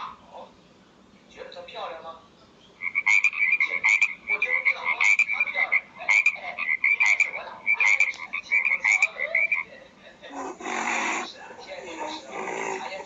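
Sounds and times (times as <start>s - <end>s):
frog croaking: 2.8s - 9.7s, 10.3s - 13.0s.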